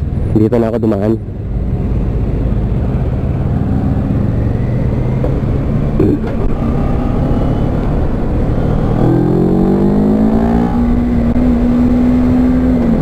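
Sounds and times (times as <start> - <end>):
motorcycle engine accelerating: 2.1 - 13.0.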